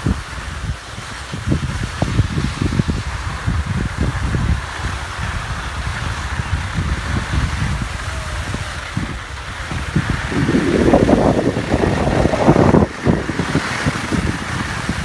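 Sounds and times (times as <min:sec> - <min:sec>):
loud rushing noise: 0:00.0 - 0:15.0
wind buffeting microphone: 0:00.0 - 0:15.0.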